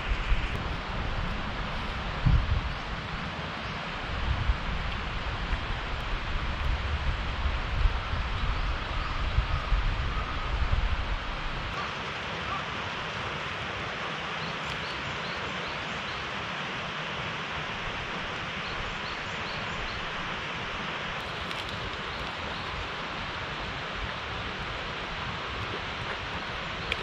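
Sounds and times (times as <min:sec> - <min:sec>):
wind rumble on microphone: 0:00.0 - 0:11.8
rushing outdoor noise: 0:00.0 - 0:27.0.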